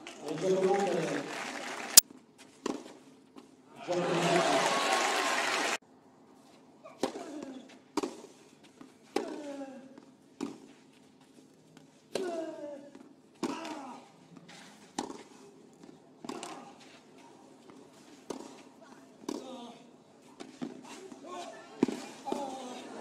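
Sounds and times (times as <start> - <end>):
applause: 0.0 - 2.0, 3.9 - 5.8
racket hitting tennis ball: 13.4 - 13.9, 14.8 - 15.4, 16.2 - 17.0, 18.3 - 18.6, 21.8 - 22.8.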